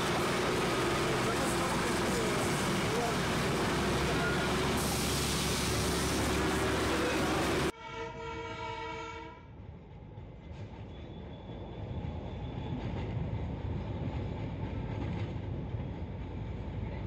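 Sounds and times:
train rumbling on track: 0.0s - 7.8s, 9.0s - 17.0s
train horn: 7.7s - 9.6s.

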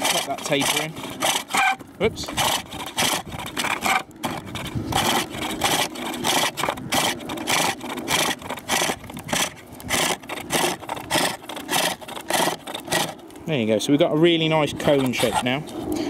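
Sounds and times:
hook tool scraping wood: 0.0s - 13.4s, 14.8s - 16.0s.

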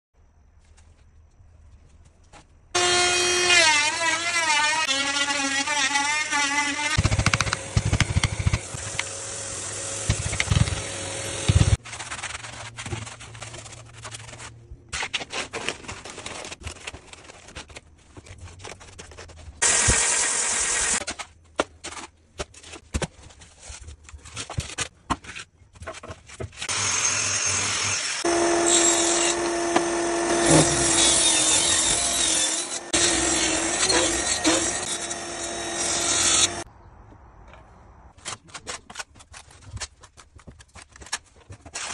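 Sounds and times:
table saw cutting wood: 2.8s - 11.8s, 19.6s - 21.0s, 26.6s - 36.7s.

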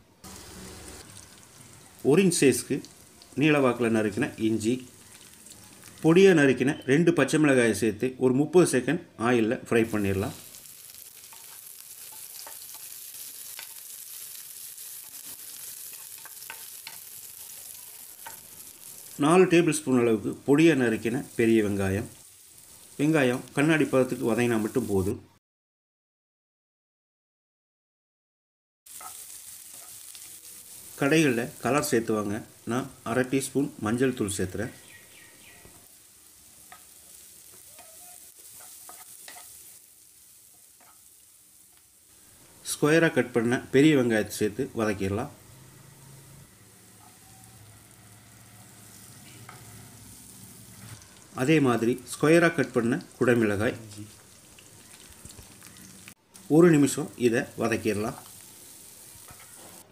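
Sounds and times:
garlic sizzling in oil: 0.2s - 7.6s, 9.7s - 25.2s, 28.9s - 59.9s
wooden spatula tapping and scraping: 15.2s - 18.5s.

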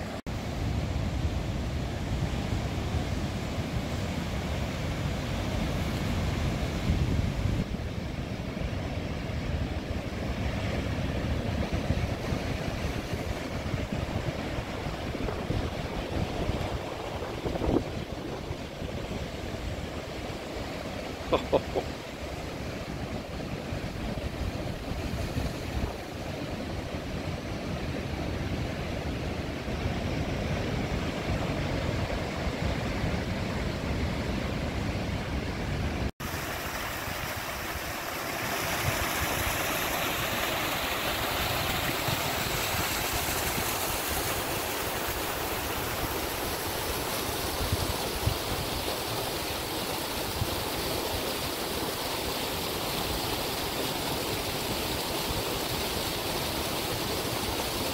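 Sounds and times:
ocean surf: 0.0s - 57.9s
wind: 0.0s - 57.9s
stream splashing over rocks: 36.2s - 57.9s.

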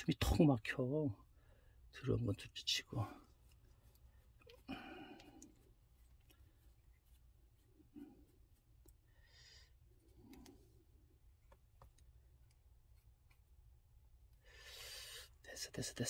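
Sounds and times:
faint rustles and clicks: 3.0s - 9.1s, 9.7s - 14.4s.

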